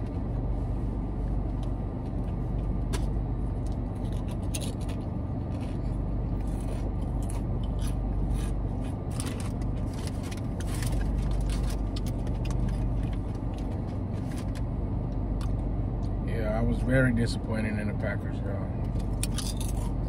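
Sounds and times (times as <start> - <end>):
low car hum: 0.0 - 20.0
chips crunched and chewed: 3.7 - 13.7.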